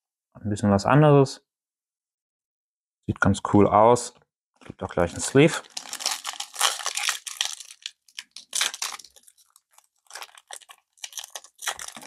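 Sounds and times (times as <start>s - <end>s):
foil wrapper crinkling and tearing: 5.6s - 12.0s.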